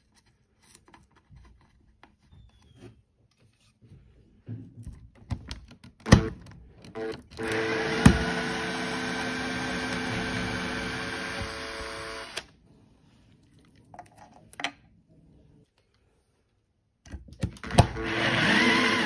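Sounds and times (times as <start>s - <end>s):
drill clicks: 6.0s - 12.5s, 17.7s - 19.0s
cordless drill motor whining: 6.9s - 12.5s, 17.8s - 19.0s.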